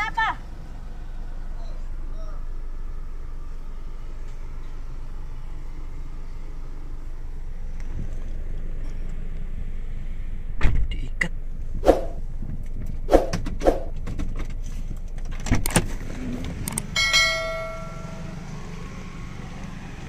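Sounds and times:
car engine idling: 0.0 - 20.0
knocks and clunks: 12.4 - 16.9
short metallic ring: 17.0 - 18.4.

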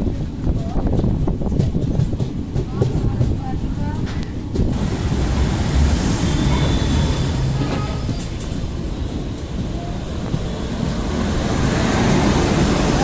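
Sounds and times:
train wheels rumbling on track: 0.0 - 13.0
rushing air: 4.2 - 13.0.

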